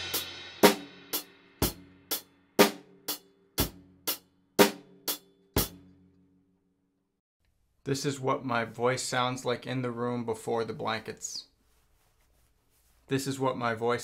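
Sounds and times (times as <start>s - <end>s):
acoustic drum kit: 0.0s - 5.9s.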